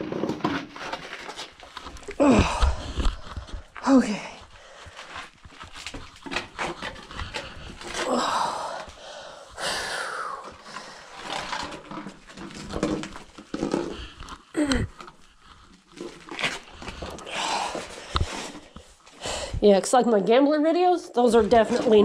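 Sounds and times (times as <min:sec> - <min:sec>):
person grunting and groaning: 0:02.1 - 0:03.2, 0:08.0 - 0:09.0, 0:14.5 - 0:15.0
person breathing hard: 0:02.1 - 0:05.4, 0:07.0 - 0:11.6, 0:13.6 - 0:15.8, 0:16.6 - 0:19.6.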